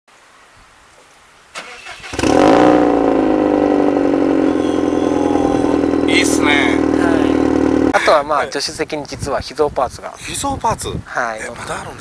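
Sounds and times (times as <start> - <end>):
car engine starting and idling: 1.6 - 8.0.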